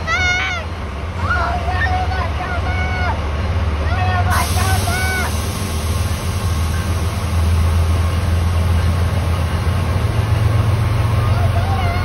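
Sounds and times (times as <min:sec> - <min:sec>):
diesel engine rumble: 0:00.0 - 0:12.0
rail noise: 0:00.0 - 0:12.0.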